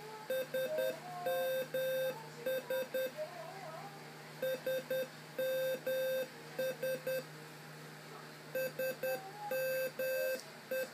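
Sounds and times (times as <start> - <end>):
buzzer beeping morse code: 0.3 - 3.1, 4.4 - 7.2, 8.6 - 10.9.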